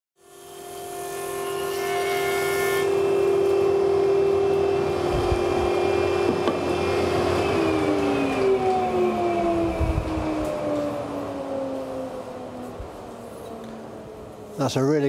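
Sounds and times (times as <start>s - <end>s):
planer humming: 2.8s - 11.2s.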